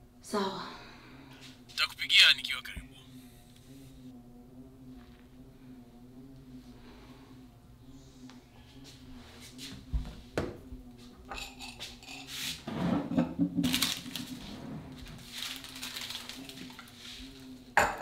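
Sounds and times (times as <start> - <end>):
faint steady hum: 0.0 - 12.2
cups and dishes clattering: 17.8 - 18.0.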